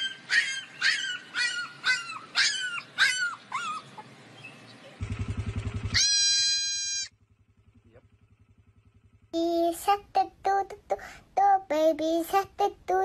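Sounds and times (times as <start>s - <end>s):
puppy yelping: 0.0s - 4.1s, 5.9s - 7.1s
low buzz: 5.0s - 13.0s
goat kid bleating: 6.0s - 7.1s.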